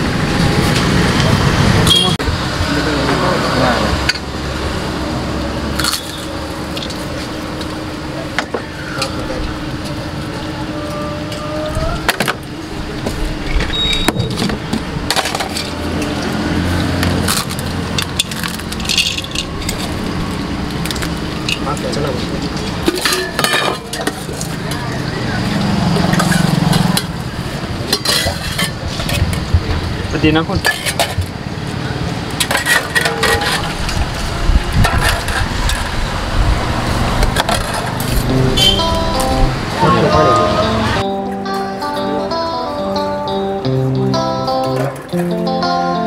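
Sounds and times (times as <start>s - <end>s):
background din: 37.2s - 46.0s.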